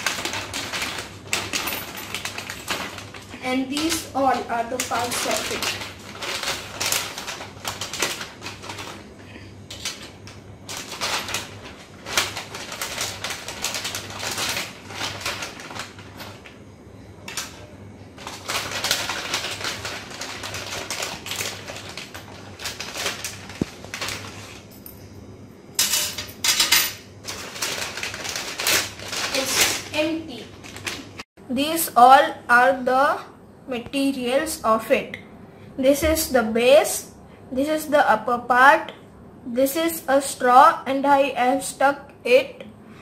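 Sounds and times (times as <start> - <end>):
plastic packet crinkling: 0.0 - 9.1, 9.7 - 16.5, 17.3 - 24.6, 27.2 - 31.2.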